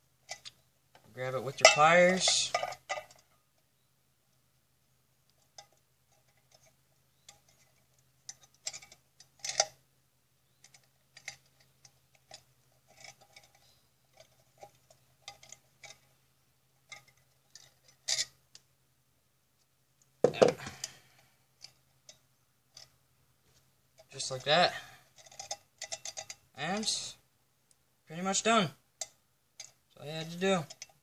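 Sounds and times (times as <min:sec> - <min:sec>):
faint steady hum: 0:00.0 - 0:31.0
pliers twisting wire on tin can: 0:00.2 - 0:00.6, 0:05.3 - 0:09.8, 0:10.5 - 0:16.1, 0:16.8 - 0:18.6, 0:24.0 - 0:27.0, 0:29.0 - 0:31.0.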